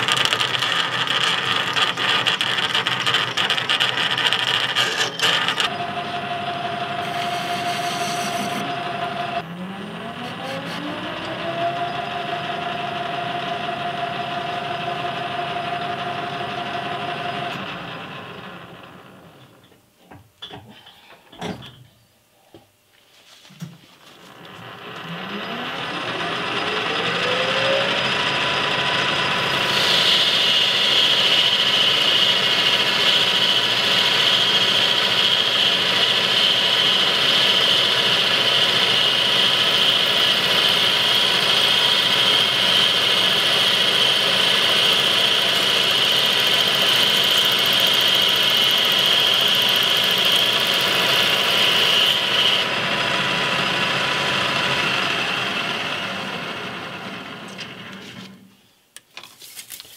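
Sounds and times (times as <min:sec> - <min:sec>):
lathe tool cutting steel: 0:00.0 - 0:19.3, 0:24.3 - 0:58.4
lathe spindle whine: 0:00.0 - 0:19.7, 0:24.1 - 0:58.5
high ringing tone: 0:07.0 - 0:08.9.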